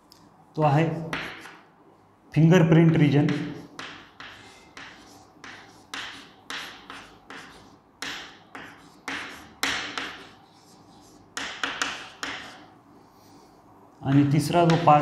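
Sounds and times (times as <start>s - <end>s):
chalk scratching on blackboard: 3.3s - 12.7s.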